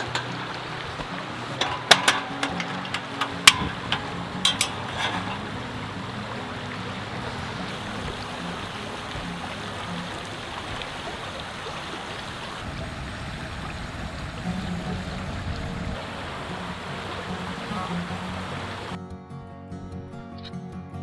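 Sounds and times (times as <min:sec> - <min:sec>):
gas burner hissing: 0:00.0 - 0:09.5
stove igniter clicks: 0:01.6 - 0:05.4.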